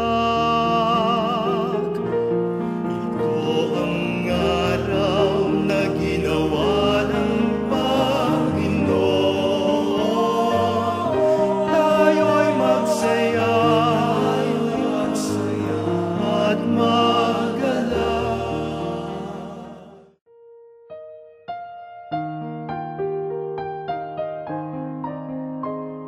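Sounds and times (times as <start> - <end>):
choir singing worship song: 3.0 - 20.2.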